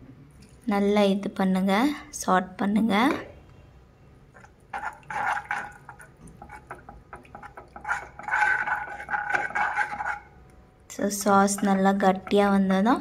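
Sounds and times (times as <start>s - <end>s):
sauce sloshing: 4.3s - 10.4s
spoon scraping a pan: 4.4s - 10.4s, 11.2s - 12.8s.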